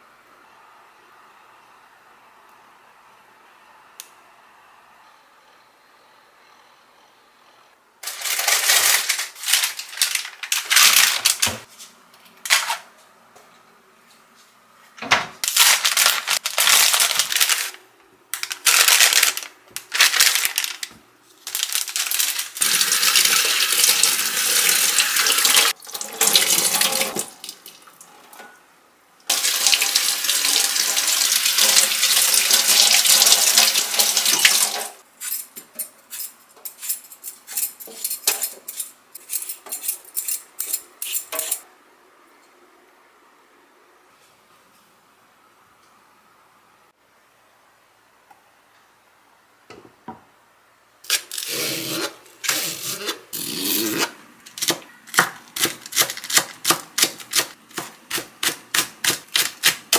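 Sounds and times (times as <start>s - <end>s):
kitchen tap running: 22.6s - 28.1s, 29.3s - 35.0s.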